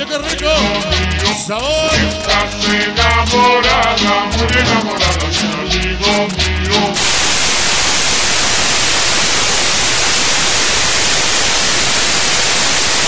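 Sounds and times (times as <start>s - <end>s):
static hiss: 6.2s - 13.0s.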